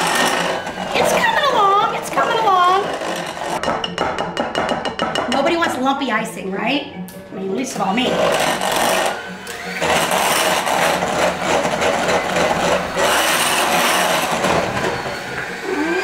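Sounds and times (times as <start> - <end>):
electric hand mixer whipping icing: 0.0 - 3.6, 7.8 - 16.0.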